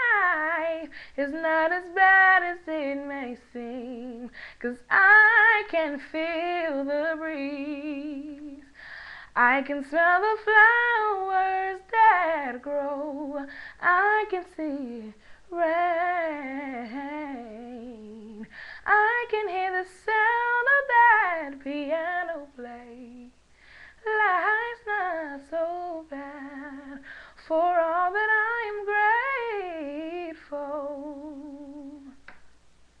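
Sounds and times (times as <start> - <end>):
girl singing unaccompanied: 0.0 - 32.4.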